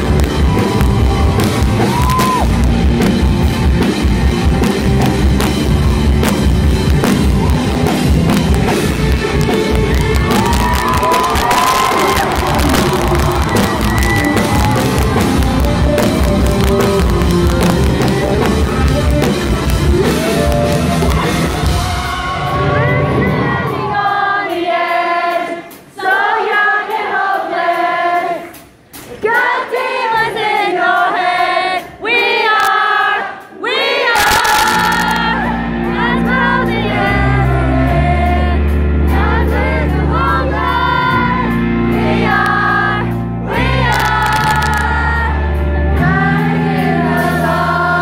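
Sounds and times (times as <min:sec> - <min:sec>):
rock band playing: 0:00.0 - 0:24.3, 0:34.2 - 0:48.0
crowd singing a melody: 0:07.9 - 0:48.0.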